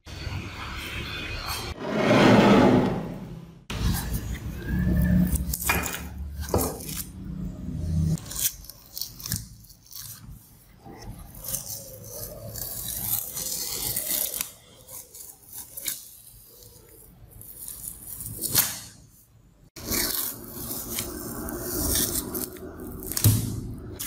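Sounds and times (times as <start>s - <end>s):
masking tape peeling off: 8.2s - 19.0s, 19.8s - 24.0s.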